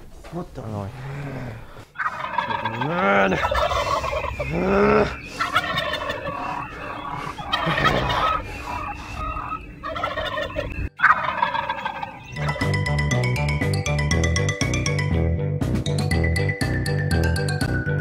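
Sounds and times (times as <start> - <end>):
turkey rising and falling cries: 2.0 - 12.6
turkey gobbling: 2.0 - 12.7.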